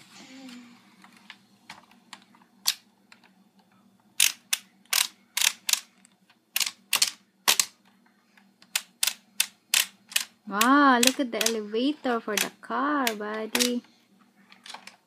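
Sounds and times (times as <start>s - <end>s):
plastic ratchet clicking: 8.7s - 11.6s.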